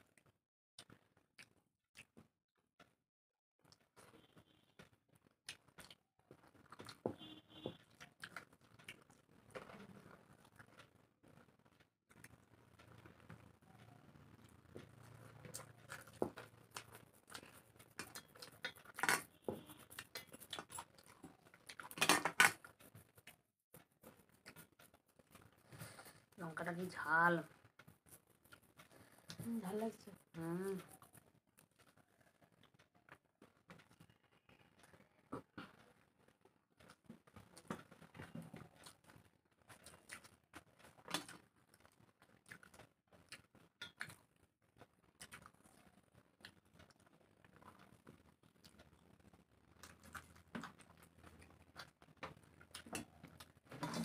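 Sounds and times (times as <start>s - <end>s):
chewing and mouth noises: 0.1s - 2.3s, 5.2s - 7.1s, 7.8s - 11.4s, 12.1s - 26.4s, 36.8s - 54.0s
fingers working food on metal plates: 12.2s - 32.0s.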